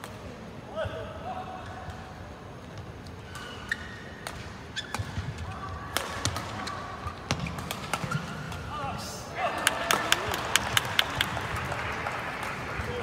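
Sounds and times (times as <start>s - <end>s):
shoes squeaking on court floor: 3.2s - 5.6s.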